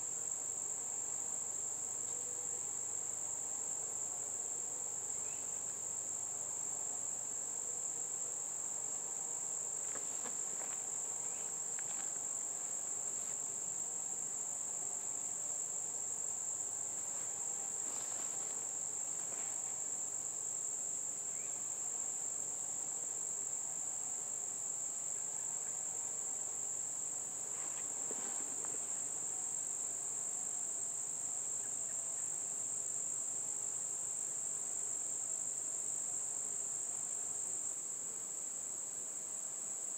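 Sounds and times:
insects singing: 5.0 - 6.4, 7.8 - 23.4.

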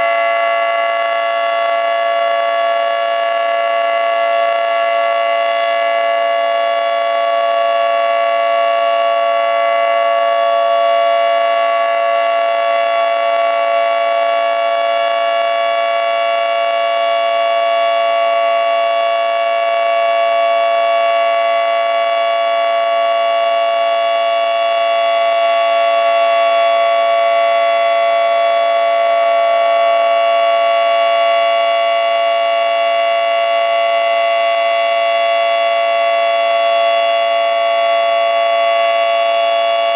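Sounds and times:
two-tone warning siren: 0.0 - 39.9.

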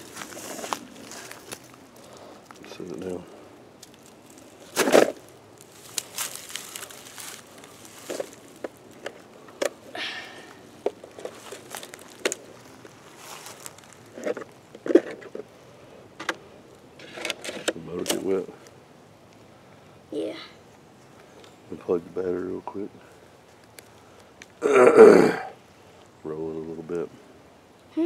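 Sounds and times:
footsteps through dry leaves: 0.0 - 2.2, 4.0 - 9.0, 11.2 - 14.2.

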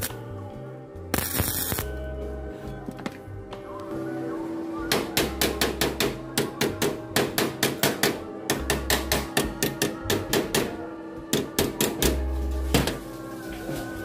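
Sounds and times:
hammer tapping sheet steel: 4.9 - 12.2.

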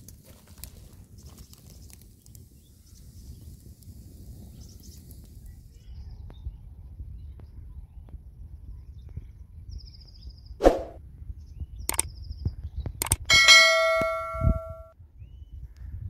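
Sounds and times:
quick swoosh: 10.6 - 11.0
sharp clicks: 11.9 - 12.1, 13.0 - 14.2
bell ding: 13.3 - 14.9.

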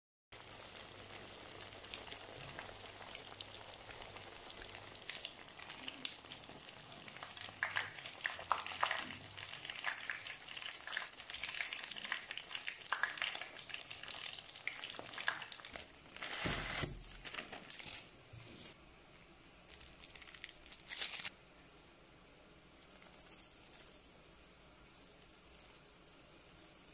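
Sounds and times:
deep-frying sizzle with crackles: 0.4 - 16.6
plastic sachet crinkling: 15.3 - 18.8, 19.7 - 21.3.

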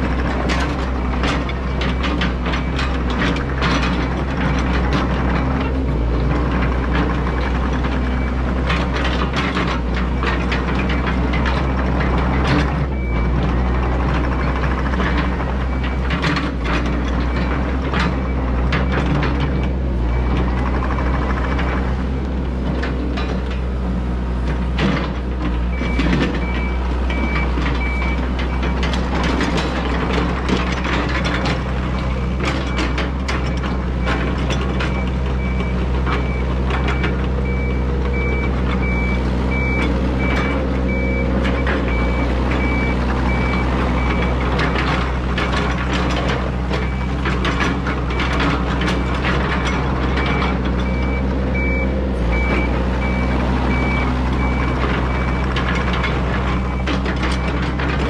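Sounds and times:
clanks from tracks and bucket: 0.0 - 58.0
excavator diesel engine running: 0.0 - 58.0
travel alarm beeping: 50.2 - 57.6.

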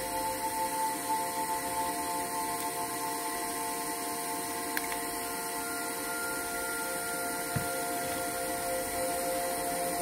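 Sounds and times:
constant hiss: 0.0 - 10.0
electrical hum: 0.0 - 10.0.

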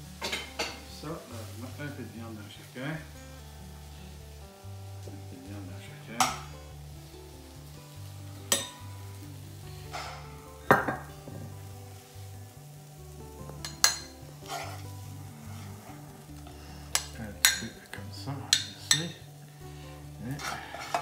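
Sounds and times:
background music: 0.0 - 21.0
utensil clinking on dishes: 0.2 - 0.9, 8.5 - 8.8, 9.9 - 11.5, 13.5 - 14.8, 16.9 - 19.3, 20.3 - 21.0.

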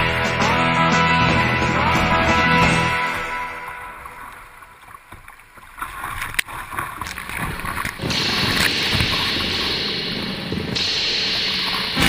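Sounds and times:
whitewater rushing and splashing: 0.0 - 12.0
sharp knock: 8.0 - 12.0.

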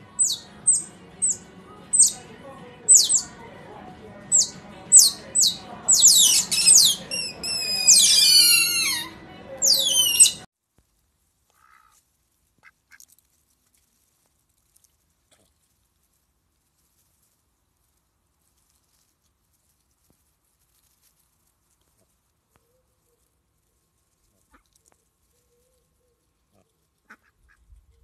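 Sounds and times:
otters squeaking: 0.2 - 2.2, 2.9 - 3.4, 4.3 - 10.5.

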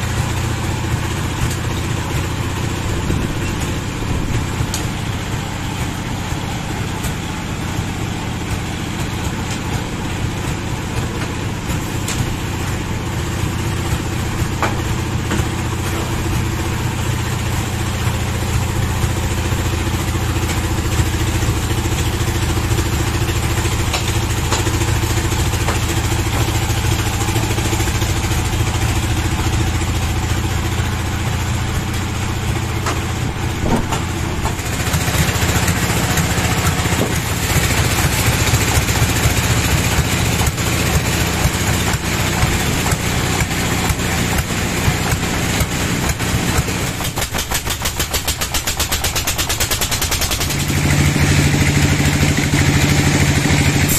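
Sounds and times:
diesel engine chugging: 0.0 - 53.9.

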